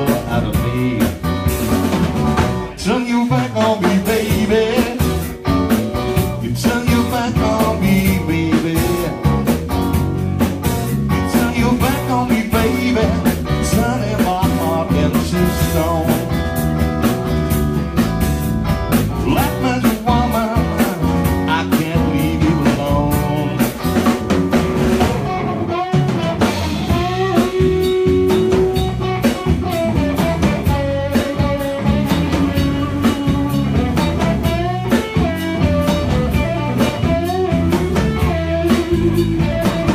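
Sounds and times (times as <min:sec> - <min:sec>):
person singing: 0:00.0 - 0:01.3, 0:02.7 - 0:05.3, 0:06.4 - 0:09.3, 0:11.1 - 0:16.3, 0:19.2 - 0:23.8
drum kit: 0:00.0 - 0:39.9
electric guitar: 0:00.0 - 0:39.9.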